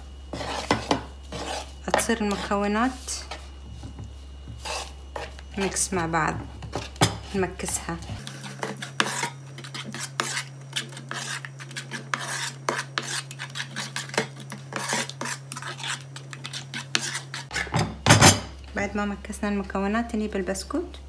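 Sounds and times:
metal spoon scraping a bowl: 0.3s - 3.4s, 4.6s - 5.8s, 6.6s - 17.8s.

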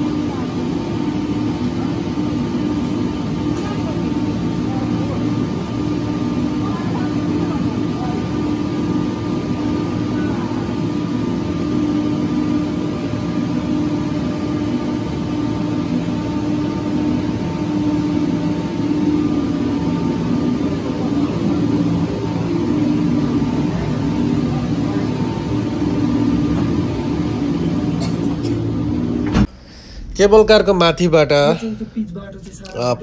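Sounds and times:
cable car machinery hum: 0.0s - 33.0s.

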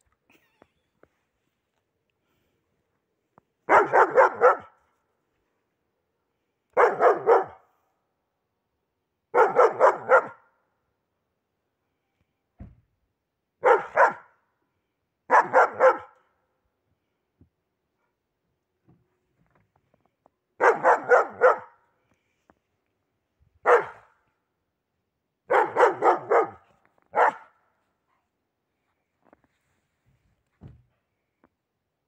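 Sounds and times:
dog barking: 3.7s - 4.8s, 6.7s - 7.7s, 9.3s - 10.5s, 13.6s - 14.4s, 15.3s - 16.2s, 20.6s - 21.8s, 23.6s - 24.2s, 25.5s - 27.6s.

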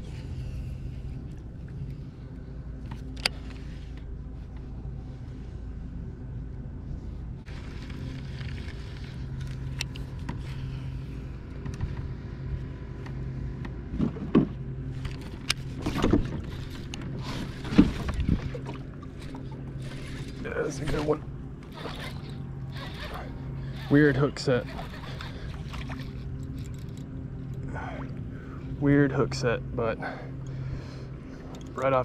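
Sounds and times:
steady low hum: 0.0s - 32.0s
knocks and thumps against kayak: 13.9s - 15.2s, 15.8s - 19.0s.

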